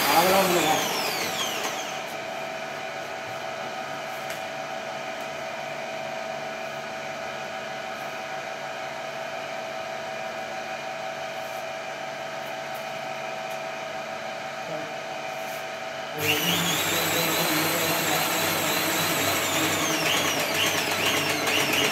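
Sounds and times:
electric pump whining: 0.0 - 3.9, 16.2 - 21.9.

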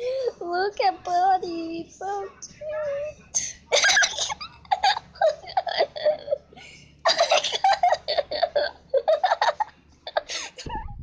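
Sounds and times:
person giggling and laughing: 3.7 - 11.0.

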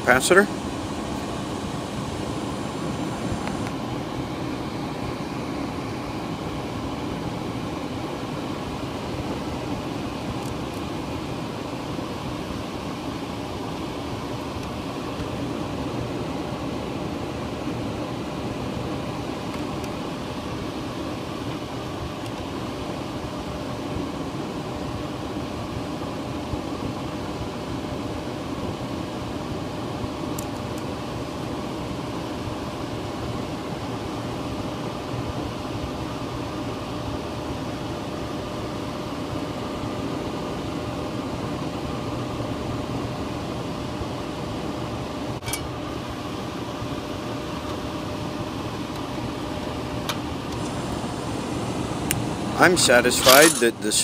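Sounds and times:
faint steady hum: 0.0 - 26.4, 27.2 - 54.0
air handler fan rushing air: 0.0 - 54.0.

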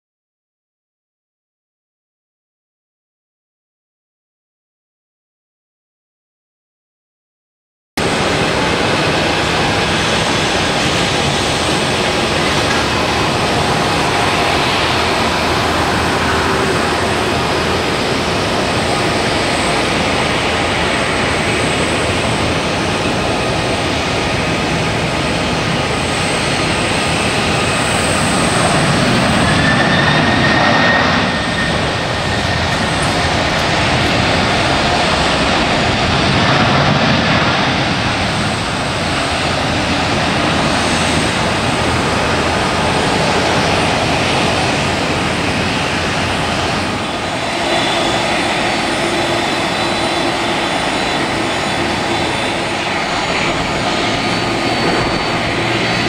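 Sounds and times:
jet engines running: 8.0 - 56.0
thin whine: 46.9 - 56.0.

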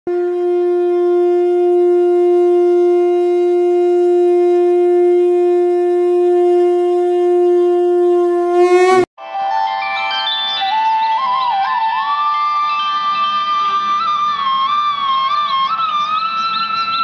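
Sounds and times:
conch shell blown: 0.1 - 9.1.

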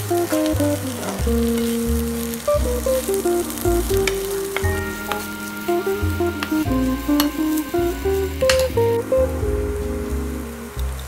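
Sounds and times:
background music with bass line: 0.0 - 11.0
onions sizzling in a pan: 0.0 - 11.0
spoon stirring: 4.6 - 8.7.

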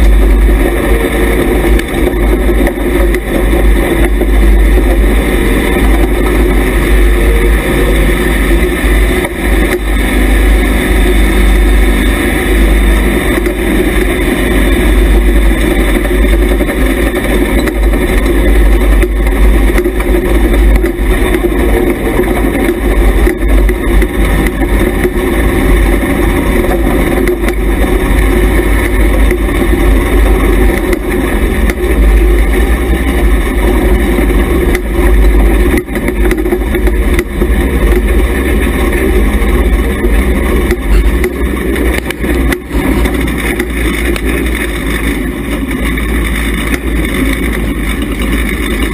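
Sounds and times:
race car engine rumbling: 0.0 - 48.9.

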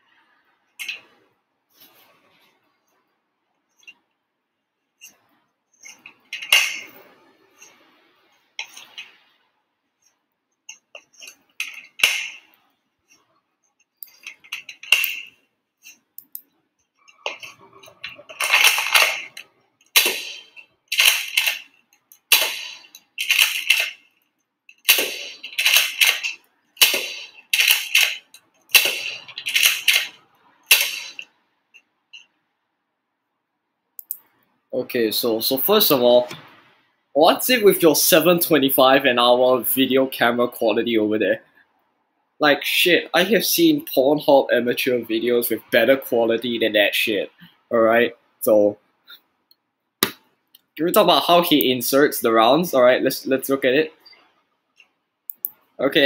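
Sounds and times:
toy blaster plastic clacks: 20.0 - 21.7, 22.3 - 24.0, 24.7 - 31.2.

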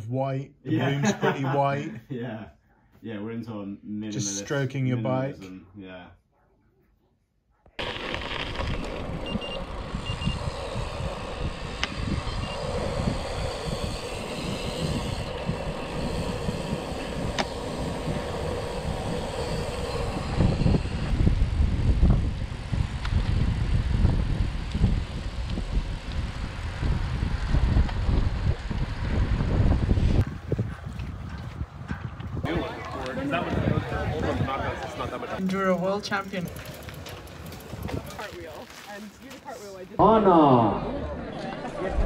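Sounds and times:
road and tyre noise: 7.8 - 42.0
wind buffeting microphone: 8.2 - 38.8.

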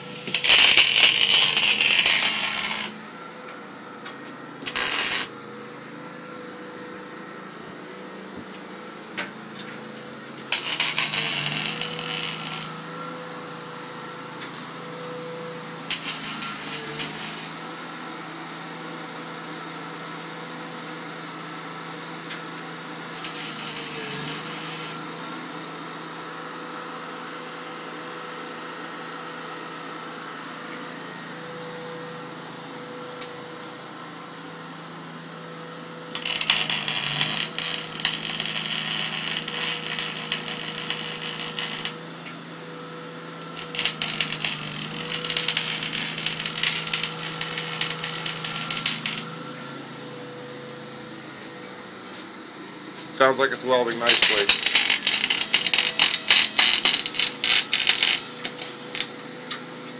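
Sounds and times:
welder arc crackling: 0.2 - 3.0, 4.6 - 5.4, 10.5 - 12.7, 15.9 - 17.5, 23.2 - 25.0, 36.2 - 42.0, 43.6 - 49.3, 54.0 - 59.1
steady hum: 43.5 - 59.3.

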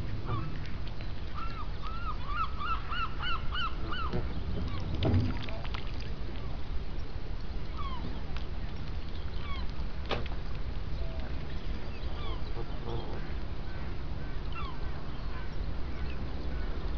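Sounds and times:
low thump: 4.1 - 5.6
goose honking: 12.2 - 13.4.

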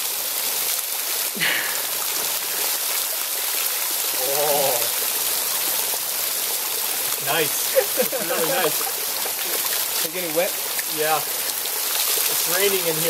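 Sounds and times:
water falling and dripping: 0.0 - 13.0
person's wavering vocal sound: 1.4 - 1.9, 4.2 - 4.9.

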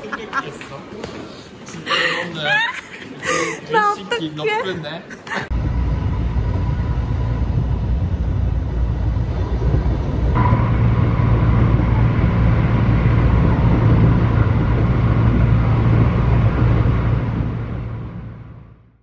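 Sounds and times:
faint whine: 5.5 - 19.0
train rumbling: 5.5 - 19.0.

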